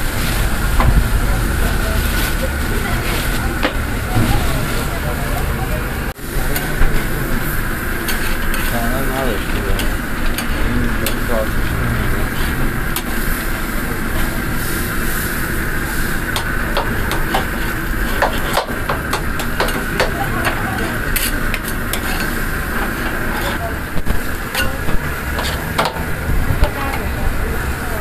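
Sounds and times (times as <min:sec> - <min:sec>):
burger patties sizzling on a grill: 0:00.0 - 0:28.0
spatula scraping grill grate: 0:17.0 - 0:27.0.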